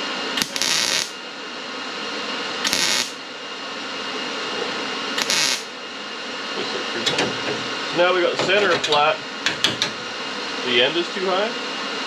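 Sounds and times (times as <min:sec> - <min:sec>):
welder sizzling bursts: 0:00.4 - 0:01.2, 0:02.6 - 0:03.2, 0:05.2 - 0:05.7.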